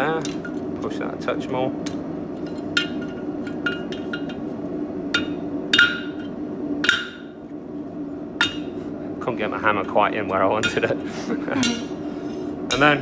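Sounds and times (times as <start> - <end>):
steady low hum: 0.0 - 13.0
hammer striking metal on anvil: 5.1 - 7.4, 8.4 - 8.8.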